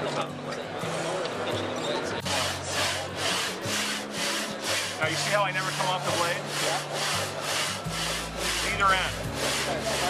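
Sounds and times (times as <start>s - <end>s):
hand saw cutting wood: 2.3s - 10.0s.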